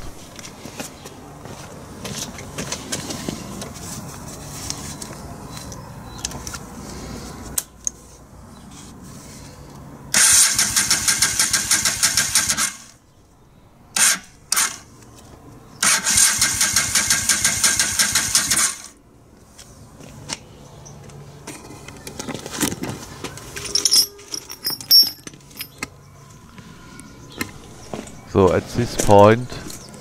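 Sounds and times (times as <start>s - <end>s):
motorcycle starter cranking: 10.2s - 12.8s, 15.8s - 18.8s.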